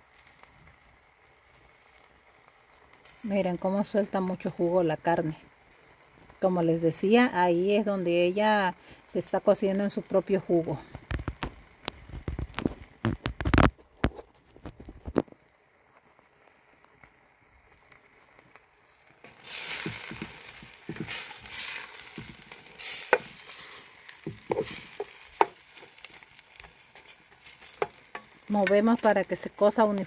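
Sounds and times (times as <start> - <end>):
meat sizzling with pops: 0.0 - 30.0
knocks and handling thumps: 11.0 - 15.2, 19.8 - 21.2, 24.2 - 27.1.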